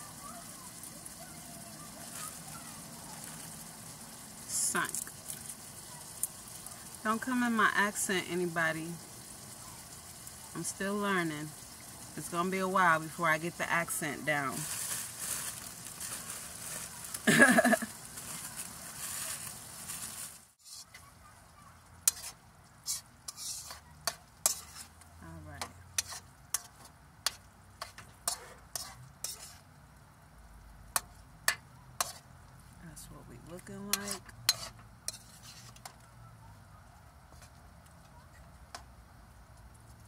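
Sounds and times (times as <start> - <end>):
meat sizzling in a wok: 0.0 - 32.8, 33.5 - 37.9
metal spoon scraping a wok: 20.6 - 21.0, 22.0 - 29.7, 31.0 - 32.3, 33.6 - 36.0.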